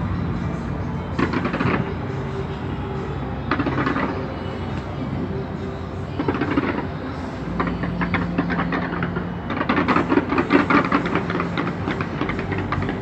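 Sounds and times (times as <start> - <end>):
fireworks crackling and banging: 1.1 - 2.1, 3.5 - 4.3, 6.2 - 13.0.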